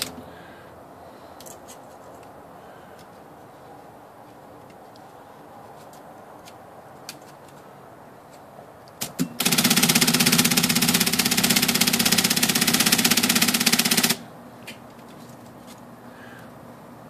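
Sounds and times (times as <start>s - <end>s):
typewriter rapid clicking: 9.0s - 14.2s.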